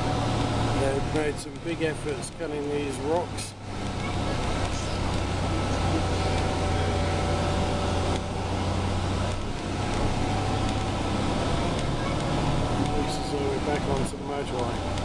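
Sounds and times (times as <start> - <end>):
bus engine drone: 0.0 - 15.0
road noise: 0.0 - 15.0.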